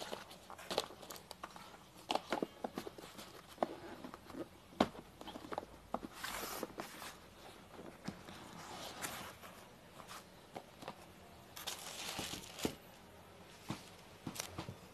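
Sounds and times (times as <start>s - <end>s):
box rustling and scraping: 0.0s - 12.9s.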